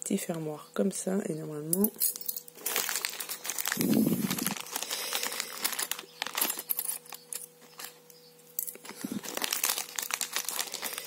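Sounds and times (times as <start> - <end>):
plastic bag crinkling: 2.2 - 11.0.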